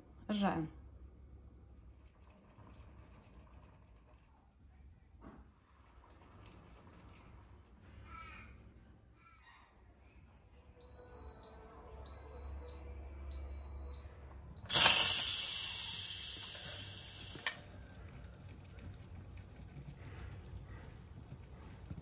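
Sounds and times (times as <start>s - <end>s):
pressure cooker beeping: 10.8s - 17.6s
steam hissing from valve: 14.7s - 17.6s
valve click: 14.7s - 17.6s.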